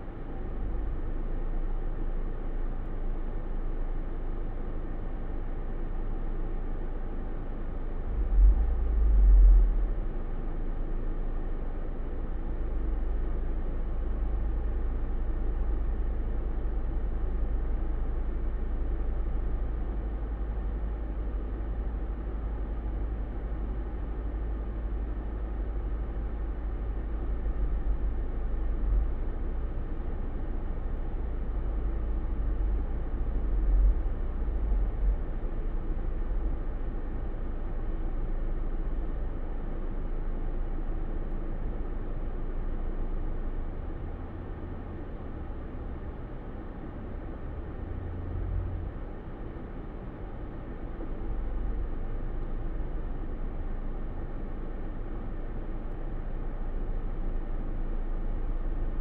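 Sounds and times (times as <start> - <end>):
deep rumble: 8.0 - 10.8, 13.9 - 39.2.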